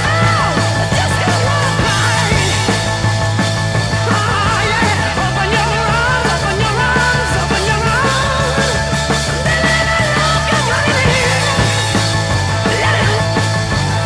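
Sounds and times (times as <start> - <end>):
rock music: 0.0 - 14.0.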